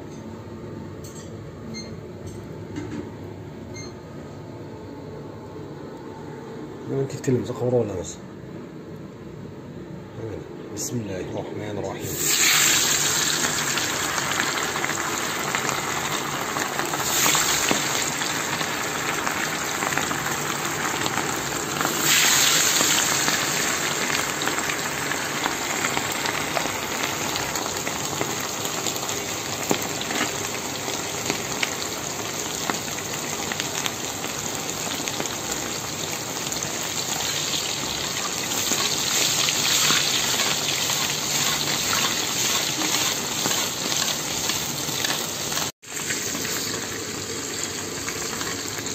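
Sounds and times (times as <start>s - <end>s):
meatballs sizzling in hot oil: 12.0s - 48.9s.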